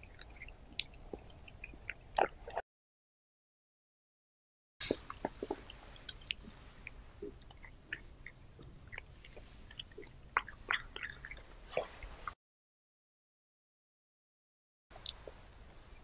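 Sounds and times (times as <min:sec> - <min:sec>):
cat chewing raw meat: 0:04.8 - 0:11.6.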